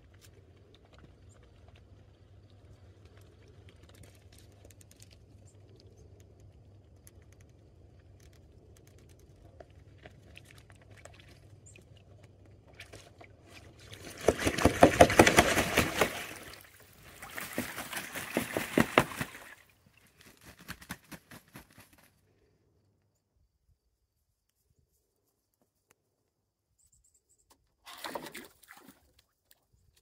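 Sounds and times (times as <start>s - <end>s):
faint drips and ticks: 0.0s - 13.6s
geese splashing in water: 9.8s - 21.9s, 27.9s - 29.3s.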